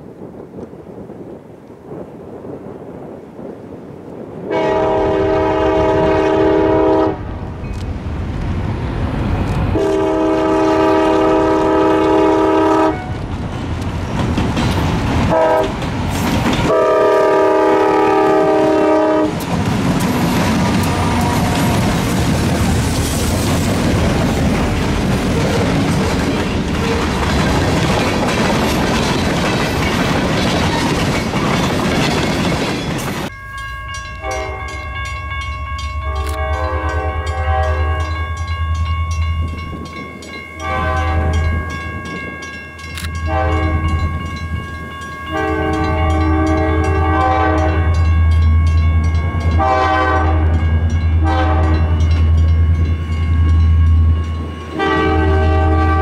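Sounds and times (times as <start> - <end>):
locomotive air horn blasts: 4.5 - 7.3, 9.8 - 13.2, 15.3 - 15.7, 16.7 - 19.4, 20.9 - 22.1, 34.2 - 35.1, 36.0 - 38.2, 40.6 - 41.5, 43.2 - 44.0, 45.3 - 48.0, 49.6 - 52.1, 54.8 - 56.0
freight cars rolling on rails: 7.4 - 56.0.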